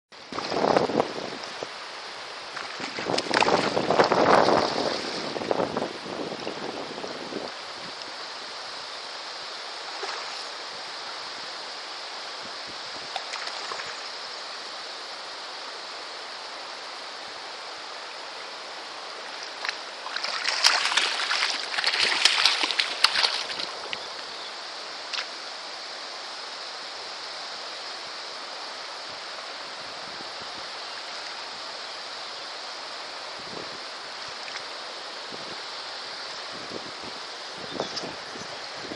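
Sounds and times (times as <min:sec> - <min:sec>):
stream water rushing: 0:00.1 - 0:38.9
fish thrashing and splashing: 0:19.7 - 0:23.9.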